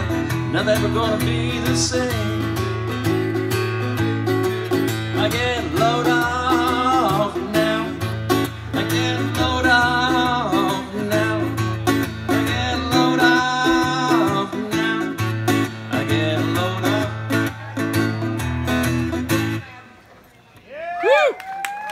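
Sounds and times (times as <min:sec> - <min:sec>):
man singing into a microphone: 0:00.0 - 0:03.0, 0:04.9 - 0:18.2
acoustic guitar strummed: 0:00.0 - 0:19.8.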